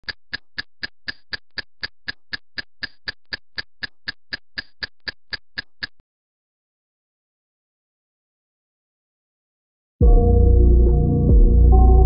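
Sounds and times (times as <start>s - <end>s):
rapid sharp ticking: 0.0s - 6.0s.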